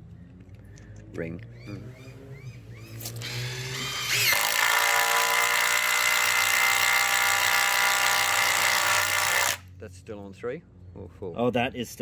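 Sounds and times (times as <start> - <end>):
impact driver buzzing rattle: 2.8 - 9.6.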